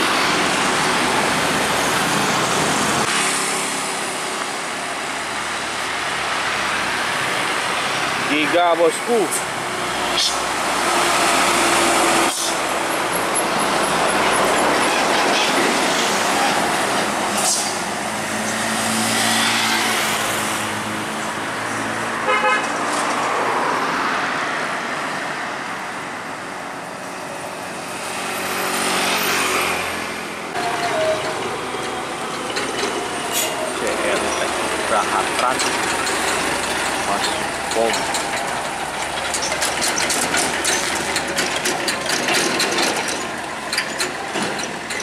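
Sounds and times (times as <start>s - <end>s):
road traffic passing: 0.0s - 45.0s
vehicle horn toots: 22.2s - 22.7s.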